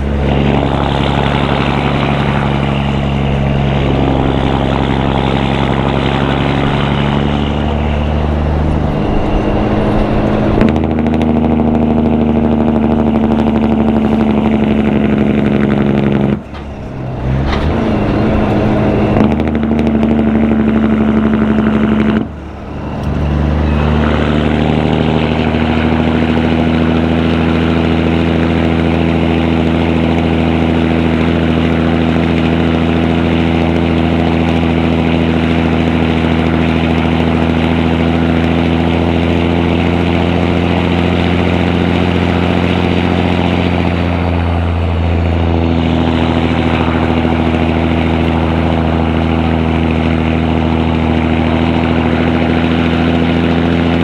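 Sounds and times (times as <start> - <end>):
diesel truck engine pulling: 0.0 - 54.0.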